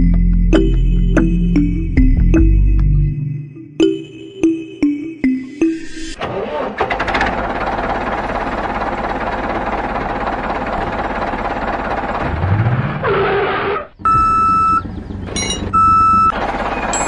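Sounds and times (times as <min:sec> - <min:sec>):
engine drone: 0:00.0 - 0:17.0
electronic reversing beeps: 0:14.0 - 0:17.0.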